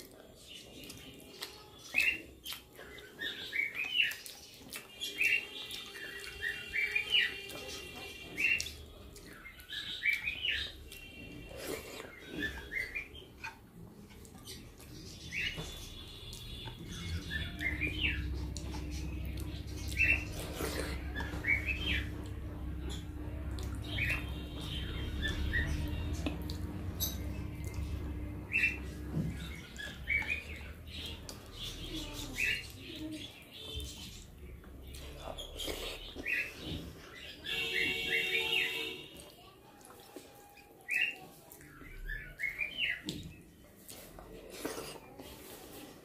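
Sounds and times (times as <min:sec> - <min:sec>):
small birds chirping: 0:00.0 - 0:44.4
low steady hum: 0:05.3 - 0:39.2.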